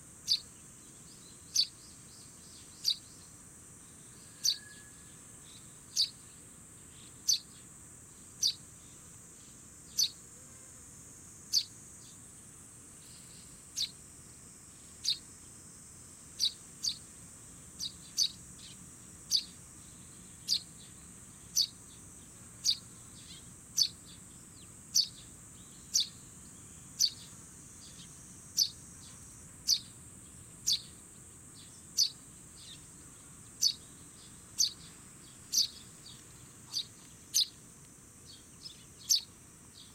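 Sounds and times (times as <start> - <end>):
high insect hiss: 0.0 - 39.9
young sparrow chirping: 0.2 - 0.5, 1.1 - 3.2, 4.3 - 4.8, 5.5 - 6.2, 6.9 - 7.6, 8.4 - 8.6, 9.9 - 10.2, 11.5 - 11.7, 13.1 - 14.0, 15.0 - 15.2, 16.4 - 17.0, 17.8 - 19.6, 20.4 - 21.8, 22.6 - 24.3, 24.9 - 26.2, 27.0 - 28.8, 29.6 - 29.9, 30.6 - 31.0, 31.6 - 32.9, 33.6 - 37.5, 38.3 - 39.9.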